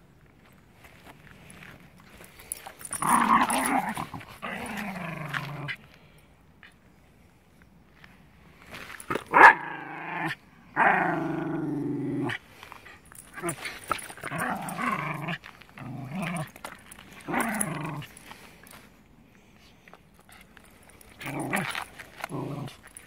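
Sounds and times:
dog growling: 2.9 - 5.8, 9.3 - 12.4, 13.3 - 16.6, 17.2 - 18.1, 21.1 - 22.8.

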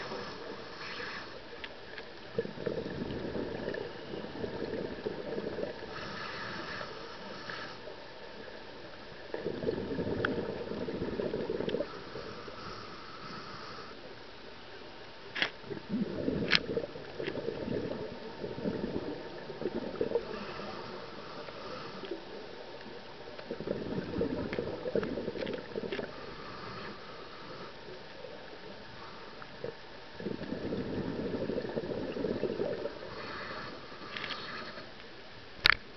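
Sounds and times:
inhaling hiss: 5.8 - 7.9, 26.2 - 27.8, 33.1 - 34.9
regulator exhalation bubbles: 15.7 - 22.1, 23.5 - 27.7, 30.2 - 33.9.

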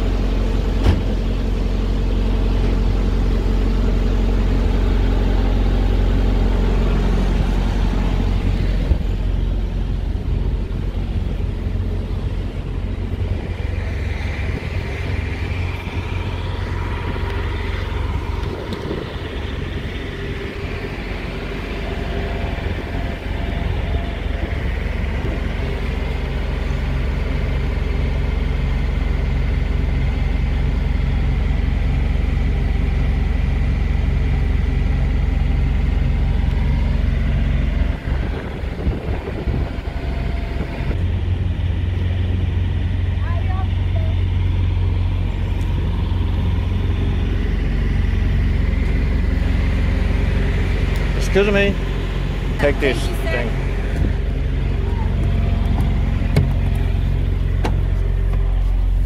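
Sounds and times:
diesel truck engine idling: 0.0 - 59.0.

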